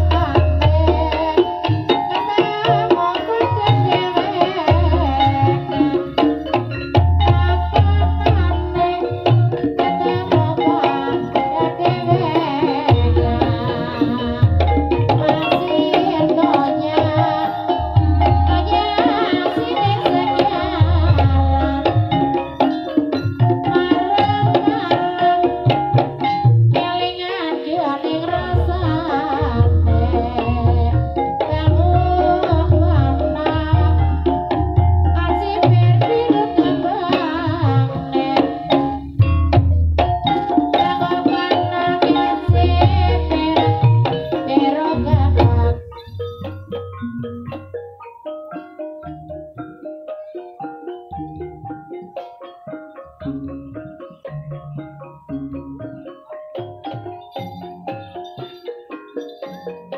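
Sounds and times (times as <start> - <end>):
metal percussion: 0.0 - 59.9
pitched gamelan melody: 0.0 - 59.9
deep drum beats: 4.6 - 26.9, 28.2 - 47.8
person singing: 7.3 - 22.6, 26.8 - 34.4, 40.8 - 46.3.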